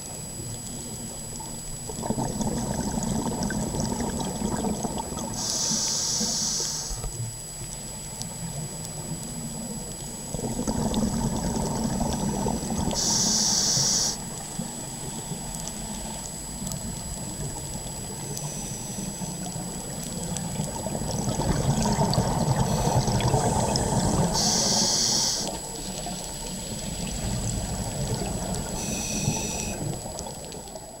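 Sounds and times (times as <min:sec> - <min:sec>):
exhaled bubbles rushing underwater: 0:00.9 - 0:05.5, 0:08.4 - 0:13.1, 0:14.2 - 0:31.0
regulator inhalation hiss: 0:05.4 - 0:07.0, 0:12.9 - 0:14.4, 0:18.3 - 0:19.4, 0:22.6 - 0:23.2, 0:24.3 - 0:25.6, 0:28.7 - 0:29.9.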